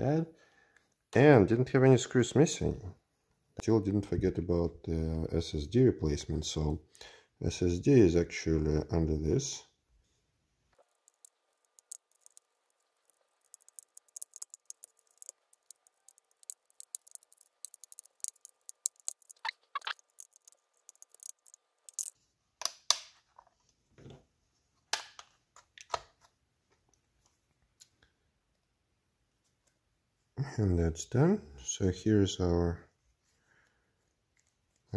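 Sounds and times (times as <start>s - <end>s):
metal foil crackling and crinkling: 10.8s - 22.2s.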